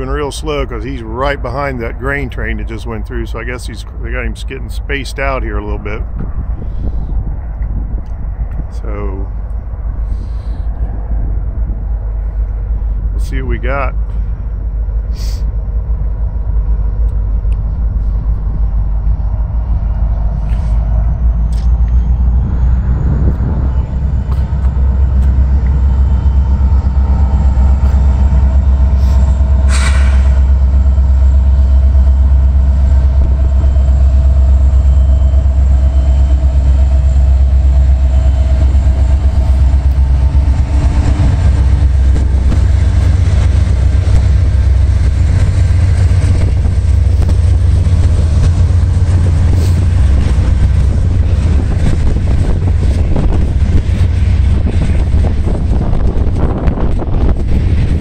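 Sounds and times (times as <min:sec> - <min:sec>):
locomotive engine rumble: 0:00.0 - 0:58.0
steady whine: 0:00.0 - 0:58.0
brief hiss: 0:29.0 - 0:30.4.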